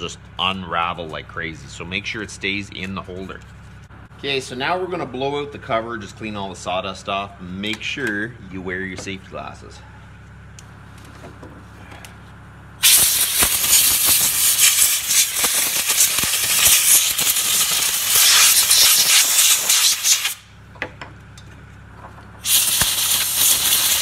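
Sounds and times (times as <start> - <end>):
compressed air blow gun hissing: 12.8 - 20.5, 22.4 - 24.0.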